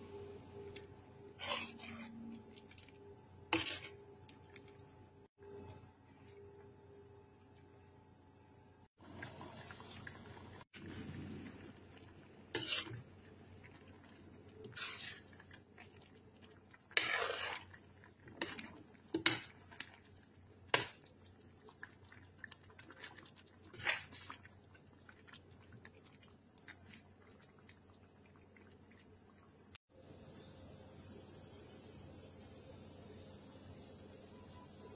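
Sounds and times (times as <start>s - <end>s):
metal spoon scraping a pan: 1.4s - 2.2s, 3.5s - 4.0s, 12.5s - 13.1s, 14.6s - 15.4s, 16.9s - 17.7s.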